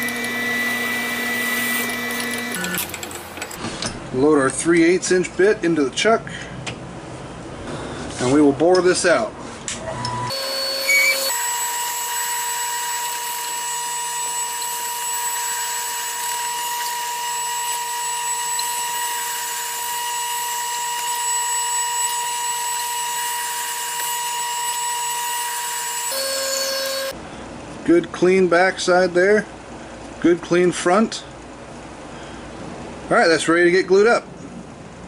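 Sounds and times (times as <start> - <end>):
drill bit whining through resin: 0.0 - 3.2, 10.0 - 27.2
lathe running: 0.0 - 3.6, 10.3 - 27.1.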